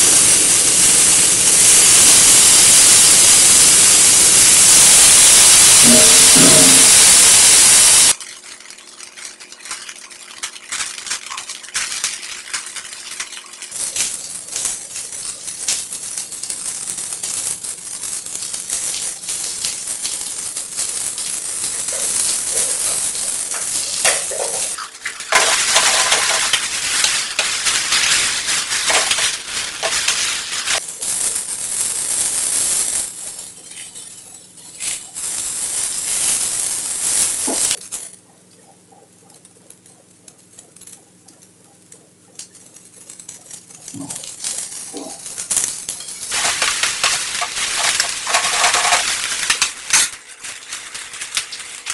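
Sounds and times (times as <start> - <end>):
sauce hissing in hot pan: 0.0 - 8.2, 13.7 - 37.8, 44.0 - 51.9
vegetables sizzling in a pan: 0.0 - 38.0, 42.6 - 51.9
vegetables stirred in pan: 0.0 - 38.0, 42.5 - 51.9.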